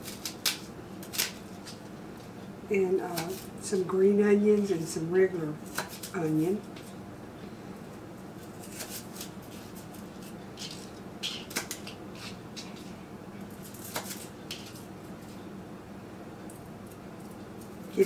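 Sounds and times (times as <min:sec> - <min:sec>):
faint steady hum: 0:00.0 - 0:18.0
knife cutting celery on board: 0:08.5 - 0:12.8.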